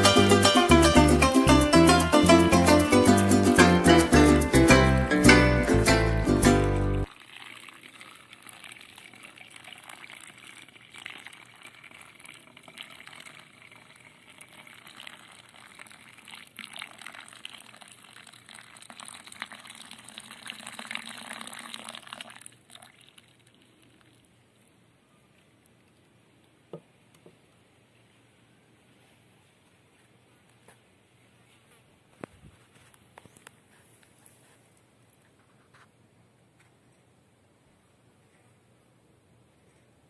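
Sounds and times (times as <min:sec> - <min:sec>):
plucked-string music: 0:00.0 - 0:07.1
water trickling and splashing: 0:07.1 - 0:24.3.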